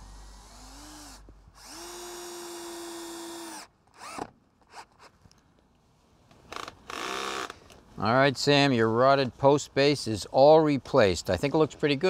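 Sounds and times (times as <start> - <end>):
cordless drill driving a screw: 0.0 - 5.1.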